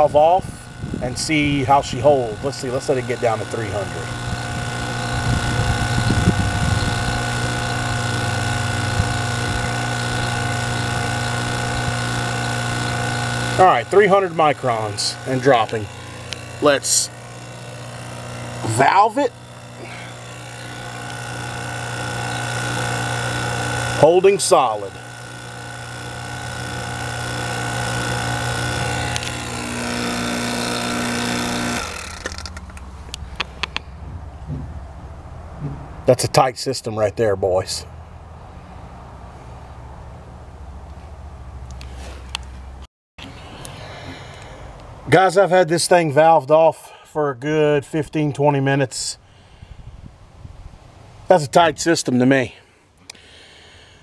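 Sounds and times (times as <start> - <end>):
vacuum pump humming: 0.0 - 36.1, 41.6 - 45.2
sharp clicks: 15.2 - 18.7, 27.7 - 33.9.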